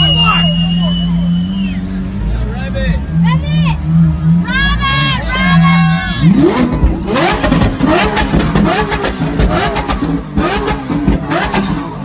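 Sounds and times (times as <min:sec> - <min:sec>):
car engine revving: 0:00.0 - 0:12.0
exhaust cracks: 0:06.2 - 0:12.0.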